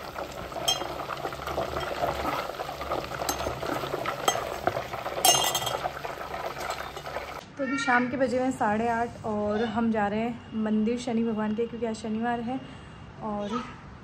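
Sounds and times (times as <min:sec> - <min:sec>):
ghee sizzling in a pan: 0:00.0 - 0:07.4
spoon clinking against pan: 0:00.6 - 0:01.0, 0:03.2 - 0:06.0.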